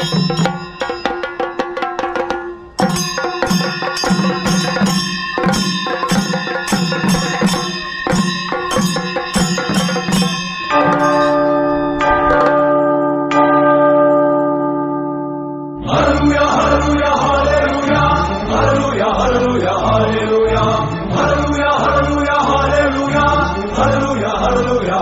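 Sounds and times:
drums beaten with sticks: 0:00.0 - 0:12.7
hand cymbals clashing: 0:00.0 - 0:12.8
bell-like music chords: 0:00.0 - 0:25.0.

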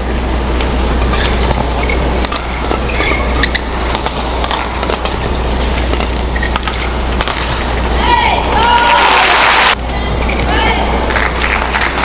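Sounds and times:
low hum: 0:00.0 - 0:08.7
shoes squeaking on court: 0:00.6 - 0:08.0, 0:09.8 - 0:10.6
rackets striking shuttlecock: 0:02.2 - 0:07.8.

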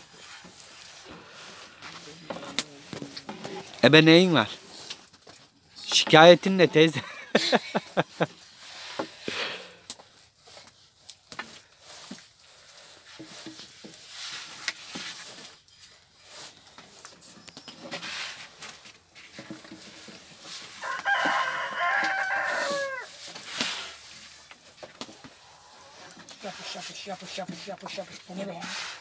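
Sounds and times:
rooster crowing: 0:20.8 - 0:23.2.

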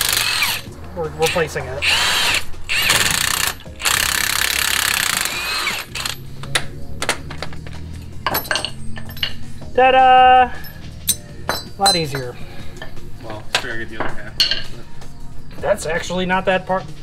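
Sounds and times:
impact wrench hammering: 0:01.8 - 0:07.6
metallic clicks and knocks: 0:06.0 - 0:09.5.

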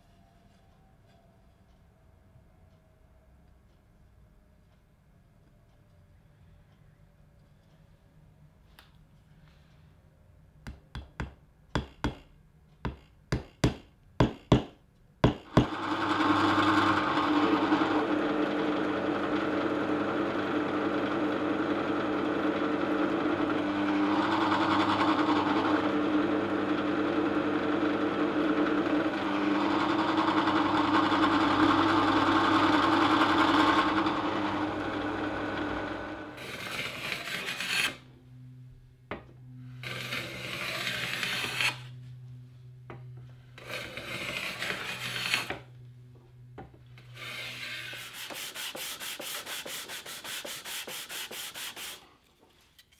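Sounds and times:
small hammer tapping on wood: 0:10.6 - 0:15.7
drill press running: 0:15.5 - 0:38.1, 0:39.6 - 0:41.8, 0:42.9 - 0:45.7
brief scrape: 0:36.4 - 0:38.0, 0:39.7 - 0:42.0, 0:43.6 - 0:45.6, 0:47.0 - 0:52.0.

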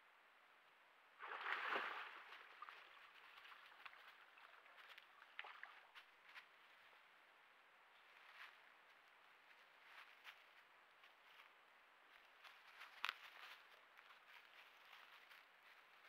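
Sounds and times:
animal splashing in water: 0:01.2 - 0:05.9.

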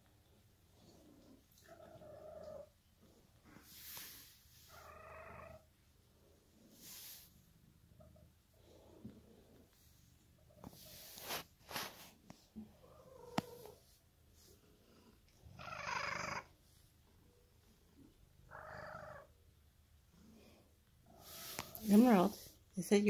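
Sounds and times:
cat purring: 0:00.0 - 0:22.7
rustling: 0:08.7 - 0:14.7.

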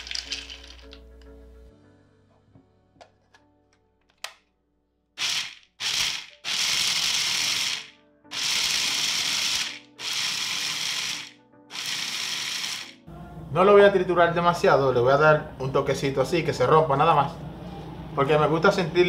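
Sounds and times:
nuts rattling against bowl: 0:00.0 - 0:01.0
food processor chopping: 0:05.2 - 0:13.0.

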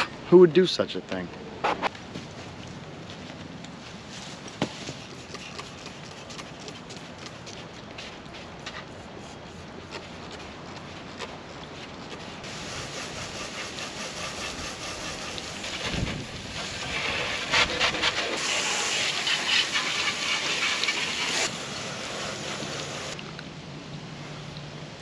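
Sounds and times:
water spraying from hose: 0:12.3 - 0:23.3.

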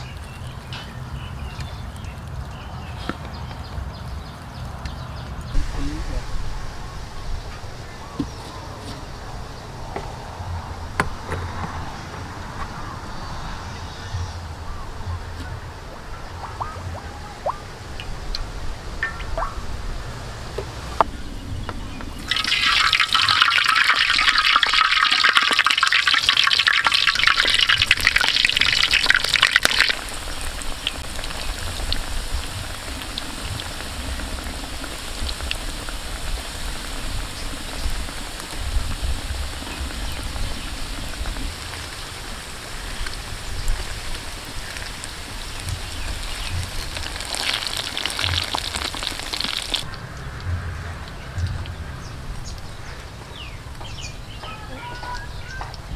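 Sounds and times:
eggs deep-frying in hot oil: 0:00.0 - 0:10.3, 0:22.0 - 0:50.4
oil popping: 0:16.3 - 0:19.8, 0:20.5 - 0:50.5.

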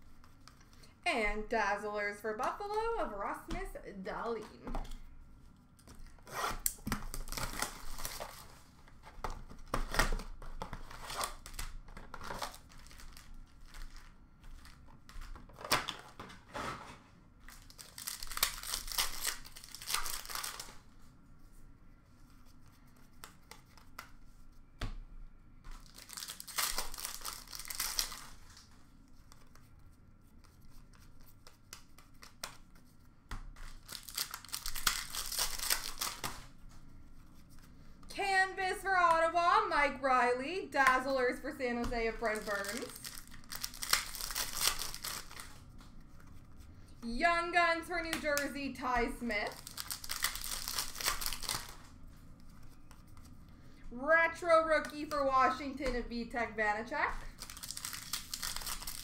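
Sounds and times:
wrappers tearing and crinkling: 0:06.0 - 0:08.5, 0:09.8 - 0:16.8, 0:17.5 - 0:20.9, 0:25.7 - 0:28.7, 0:33.6 - 0:36.5, 0:42.2 - 0:45.7, 0:49.4 - 0:51.9, 0:57.3 - 0:59.0.

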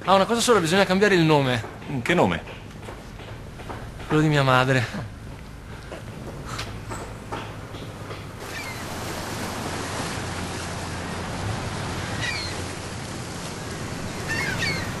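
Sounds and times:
sea waves washing: 0:05.6 - 0:15.0
seagull cries: 0:08.4 - 0:09.0, 0:10.9 - 0:15.0.

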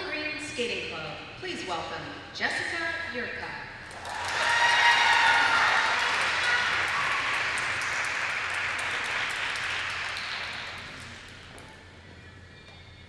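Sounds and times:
audience applause: 0:03.9 - 0:11.4.

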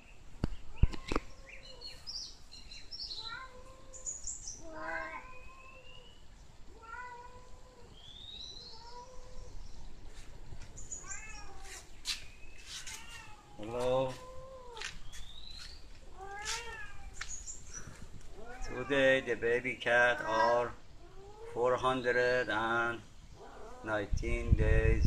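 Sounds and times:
cat meowing: 0:03.2 - 0:04.0, 0:04.6 - 0:06.0, 0:06.7 - 0:07.9, 0:08.6 - 0:09.5, 0:11.0 - 0:11.9, 0:12.8 - 0:15.0, 0:16.0 - 0:17.3, 0:18.3 - 0:19.4, 0:20.1 - 0:21.6.

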